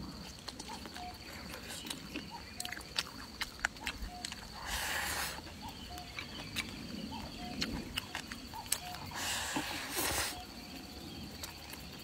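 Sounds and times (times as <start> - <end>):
chewing and lip smacks: 0.0 - 10.4
hissy slurp: 9.1 - 10.5.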